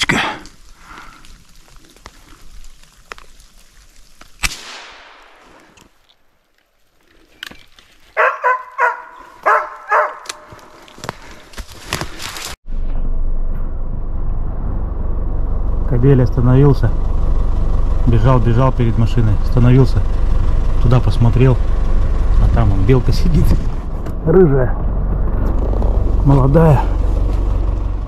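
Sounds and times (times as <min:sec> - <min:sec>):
sharp crack with ringing: 0:04.4 - 0:05.5
dog barking: 0:08.2 - 0:10.5.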